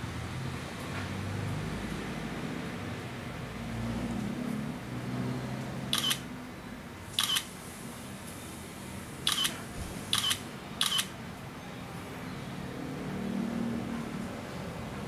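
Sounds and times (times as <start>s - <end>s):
smartphone camera shutter clicks: 5.9s - 6.3s, 7.2s - 7.5s, 9.3s - 11.1s.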